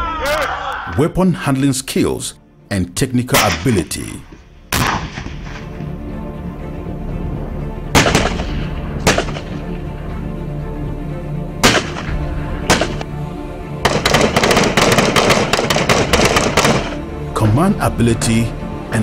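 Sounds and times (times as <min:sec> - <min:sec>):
background music: 0:00.0 - 0:19.0
single gunshots: 0:03.3 - 0:03.9, 0:04.7 - 0:05.7, 0:07.9 - 0:09.6, 0:11.6 - 0:13.1, 0:13.8 - 0:17.0
automatic gunfire: 0:13.8 - 0:17.0.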